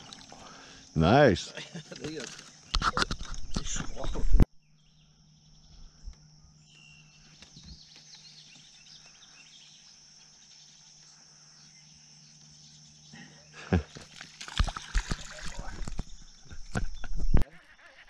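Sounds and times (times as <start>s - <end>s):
high-pitched insect drone: 4.8s - 18.0s.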